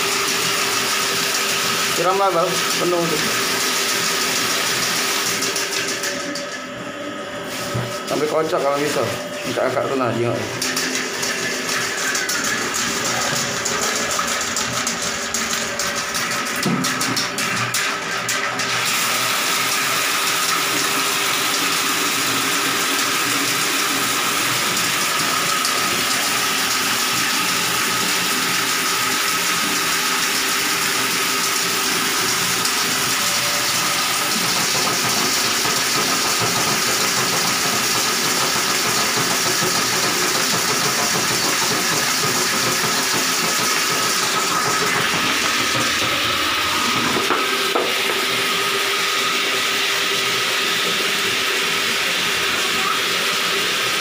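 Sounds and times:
drain-cleaning machine whining: 0.0s - 54.0s.

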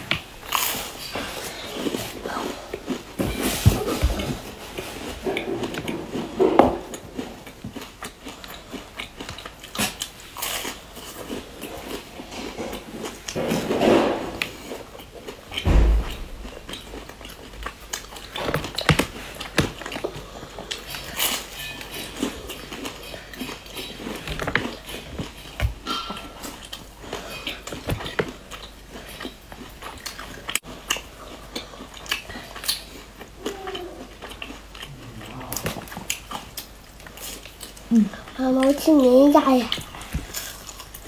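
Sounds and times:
biscuits crunching while chewed: 0.0s - 38.9s, 39.6s - 41.0s
dull thump: 15.6s - 16.4s.

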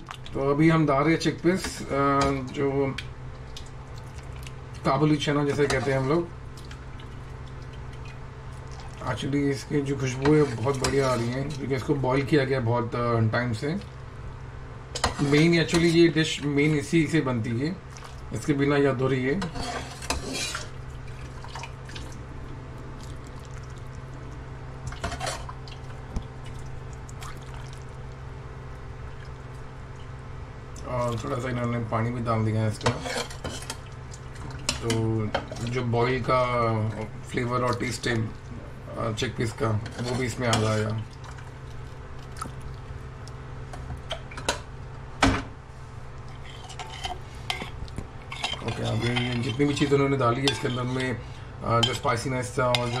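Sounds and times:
low background hum: 0.0s - 53.0s
water splashing into bowl: 24.9s - 28.2s.

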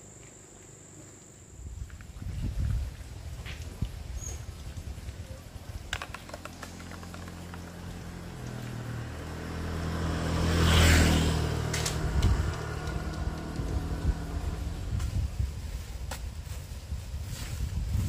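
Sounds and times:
vehicle driving past: 7.7s - 15.2s.

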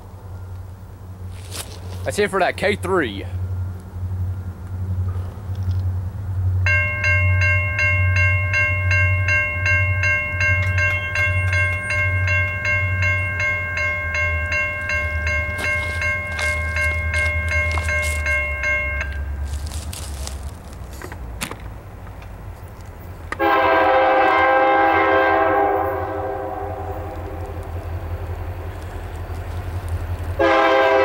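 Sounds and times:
locomotive low rumble: 0.0s - 31.0s
railroad crossing bell ringing: 6.6s - 20.3s, 30.4s - 31.0s.

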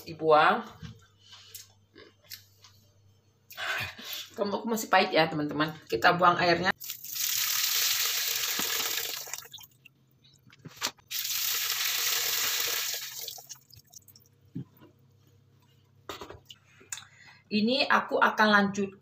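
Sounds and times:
brine pouring through metal strainer: 6.8s - 9.6s, 11.1s - 14.1s.

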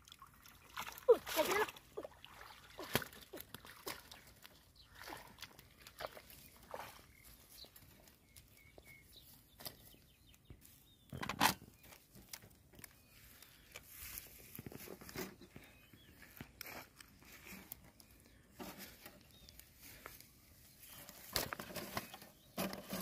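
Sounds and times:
footsteps on grass and mud: 2.7s - 11.0s, 12.9s - 21.4s
fish trap rustling: 21.0s - 23.0s.

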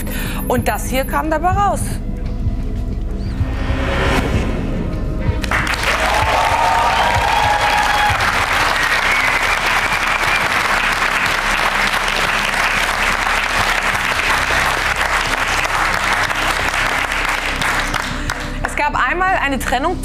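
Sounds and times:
audience applauding: 5.4s - 18.7s.

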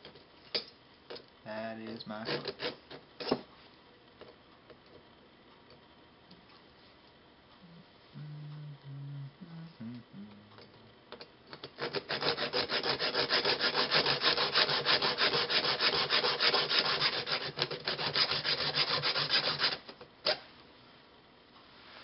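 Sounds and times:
hacksaw cutting metal: 2.2s - 3.4s, 11.6s - 20.4s.

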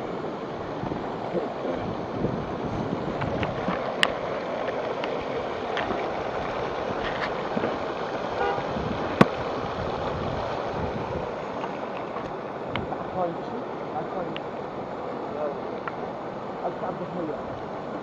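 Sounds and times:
floodwater rushing along street: 0.0s - 18.0s.

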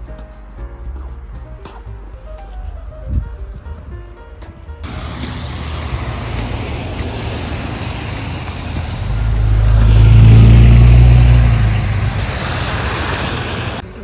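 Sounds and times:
traffic noise: 0.0s - 14.0s
vehicle engine passing: 4.8s - 13.9s.

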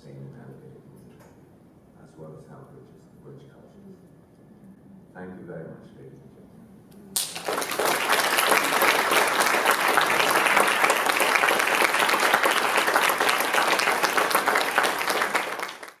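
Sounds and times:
audience applauding: 7.2s - 16.0s.

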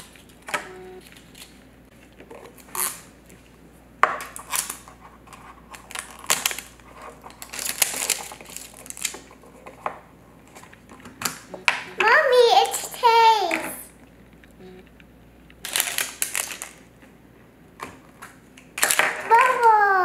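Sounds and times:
wrapper crinkling: 4.3s - 9.8s, 15.6s - 16.9s, 18.1s - 20.0s.

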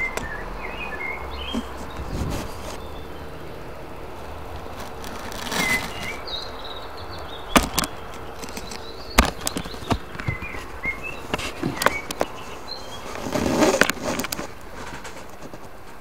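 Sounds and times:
sharp clicks and taps: 7.2s - 12.4s.

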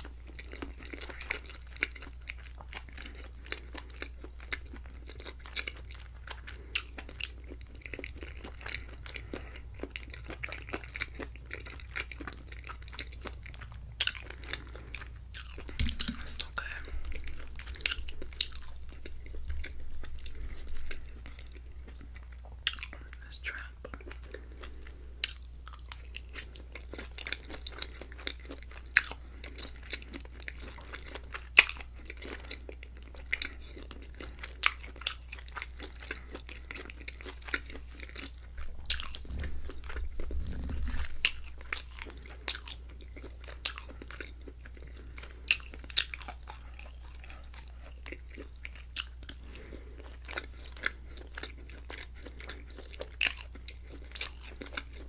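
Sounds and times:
wet chewing mouth sounds: 0.0s - 55.0s
low hum: 37.8s - 42.4s
low rumble: 38.4s - 42.1s.

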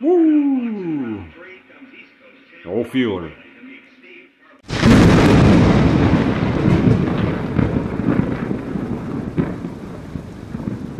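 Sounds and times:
thunder crack and rolling rumble: 4.7s - 10.9s.

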